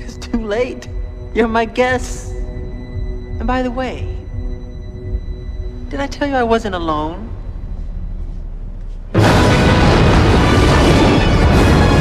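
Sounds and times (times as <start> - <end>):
horror film music: 0.0 - 12.0
loud blast of noise: 9.2 - 12.0.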